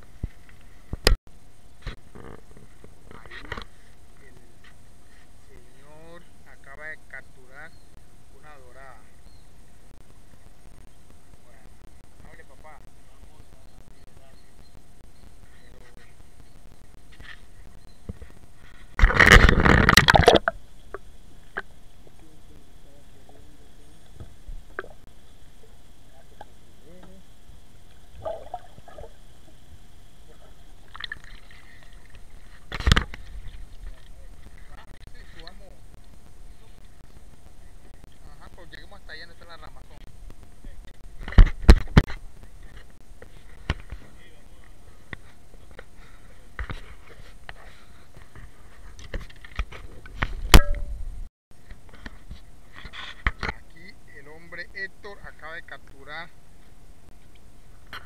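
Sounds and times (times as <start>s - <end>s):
knocks and sloshing underwater: 19.0s - 20.6s, 28.0s - 29.2s
muffled underwater water sound: 19.0s - 26.6s, 27.6s - 35.6s
sharp knock with ring: 50.6s - 50.9s.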